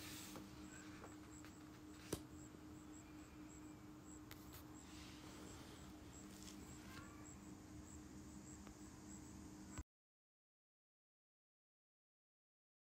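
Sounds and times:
low hum: 0.0s - 9.8s.

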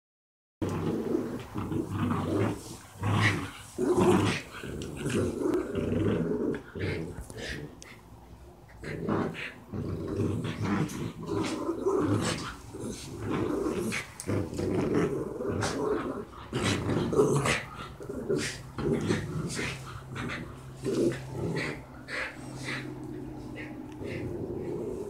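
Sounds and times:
dogs play growling: 0.6s - 25.0s.

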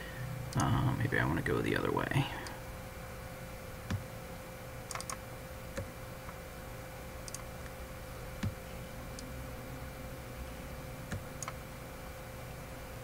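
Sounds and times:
faint electrical hum: 0.0s - 13.0s
mouse and keyboard clicks: 4.9s - 5.2s, 7.2s - 7.5s.

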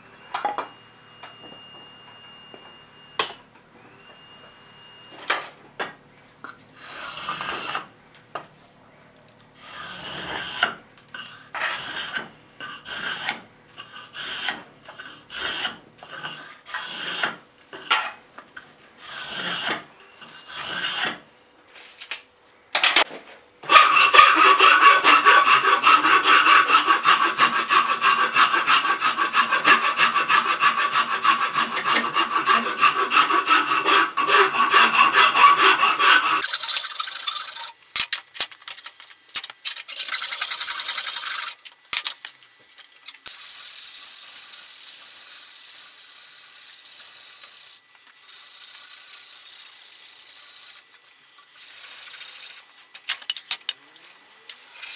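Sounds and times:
blade shaving wood: 6.5s - 7.9s, 9.6s - 18.0s, 18.6s - 21.2s, 23.6s - 37.8s, 39.8s - 42.1s, 43.2s - 53.0s
wood rasp scraping: 6.7s - 7.9s, 9.6s - 21.2s, 23.6s - 37.8s, 40.0s - 41.6s, 43.2s - 50.9s.

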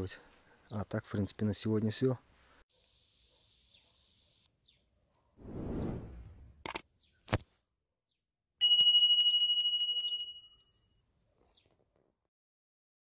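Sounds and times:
bright bell ring: 8.6s - 10.8s.

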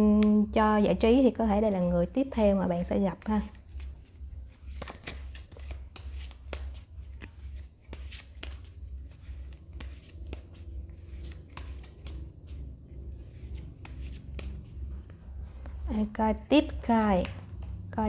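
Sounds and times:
cards clicking and rustling: 3.4s - 15.2s.

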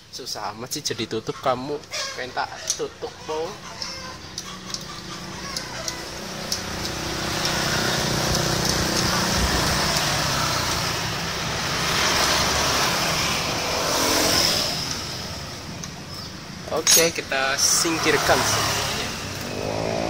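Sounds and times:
road traffic: 0.0s - 20.0s
wrench clicking on metal: 3.7s - 10.8s.

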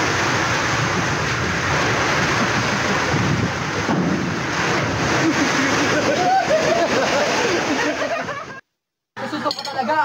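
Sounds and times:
wind buffeting microphone: 0.0s - 7.7s
sea waves breaking against ship: 0.0s - 8.6s
water washing across steel deck: 0.0s - 8.6s.

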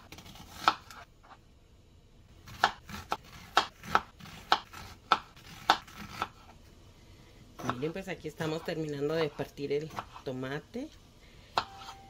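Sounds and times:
knife chopping on plastic board: 2.5s - 6.4s.

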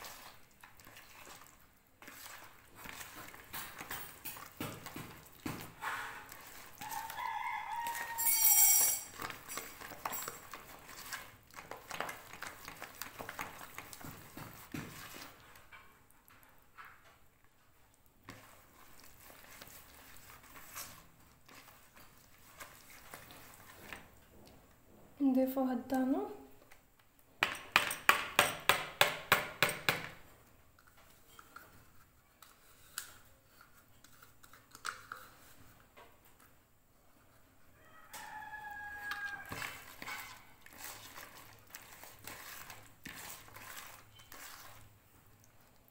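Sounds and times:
dough squelching in hands: 0.0s - 8.3s, 9.1s - 16.7s, 17.4s - 24.6s, 37.0s - 45.9s
faint clicks and handling sounds: 30.7s - 38.3s.

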